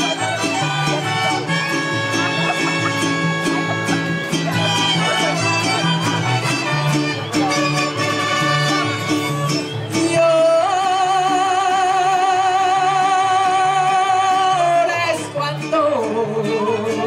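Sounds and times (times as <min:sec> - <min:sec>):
rhythmic bass line: 0:00.0 - 0:09.7
strummed guitars: 0:00.0 - 0:17.0
woman singing with vibrato: 0:09.9 - 0:17.0.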